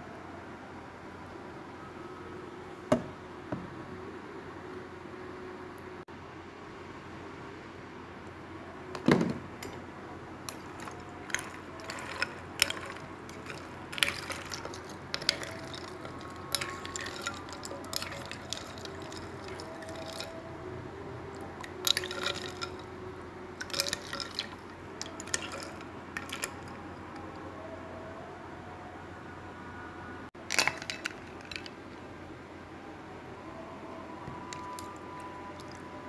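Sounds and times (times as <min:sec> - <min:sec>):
spoon clinking ice in a bowl: 0:10.5 - 0:20.4, 0:21.6 - 0:23.0, 0:23.6 - 0:27.2, 0:30.4 - 0:31.7, 0:34.5 - 0:35.8
liquid swishing: 0:10.5 - 0:20.5, 0:21.6 - 0:26.8.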